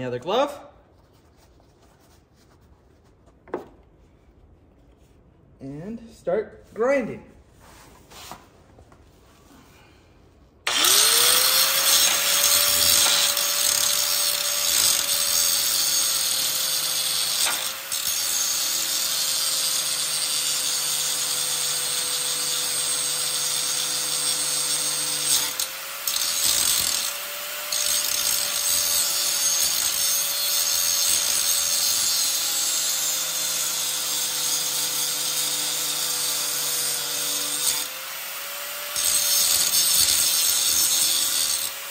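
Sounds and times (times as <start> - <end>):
angle grinder grinding metal: 10.7 - 41.9.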